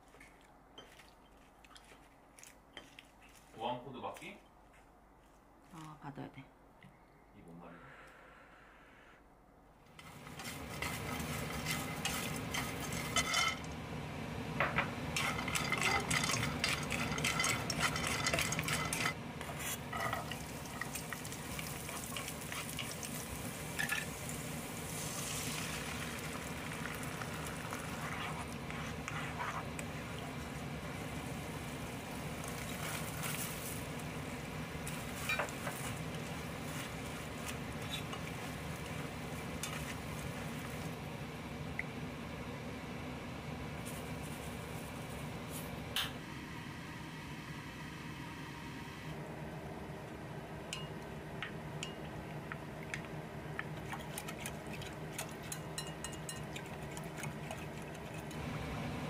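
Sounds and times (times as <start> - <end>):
food sizzling in a pan: 10.0 - 13.6, 15.2 - 41.0
utensil scraping and knocking pan: 10.0 - 13.6, 15.2 - 20.4.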